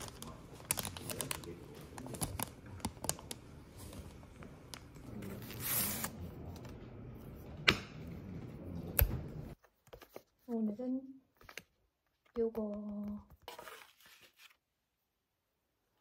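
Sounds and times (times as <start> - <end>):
plastic wrapper crinkling: 0.0 - 4.2.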